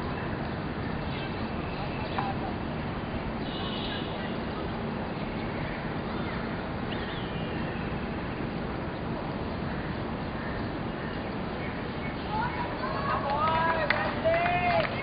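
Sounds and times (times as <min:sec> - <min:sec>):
faint distant voices: 0:00.9 - 0:07.3.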